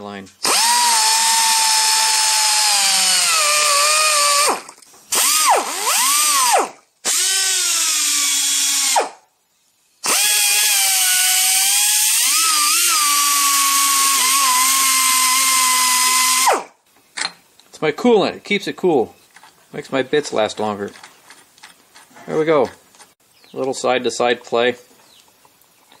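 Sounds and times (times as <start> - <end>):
pneumatic die grinder whining: 0.4 - 9.2, 10.0 - 16.7.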